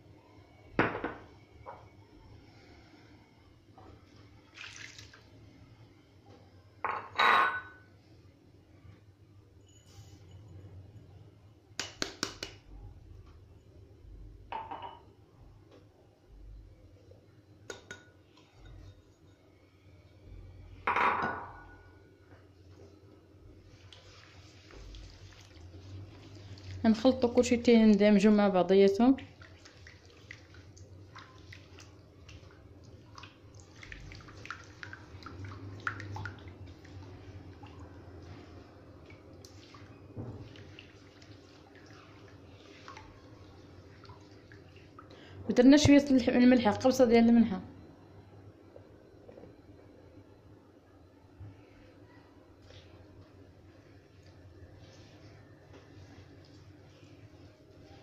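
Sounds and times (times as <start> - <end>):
glass clinking against bowl: 6.8 - 7.8, 14.5 - 15.0
wet squishing of mixing by hand: 23.6 - 45.2, 52.5 - 58.0.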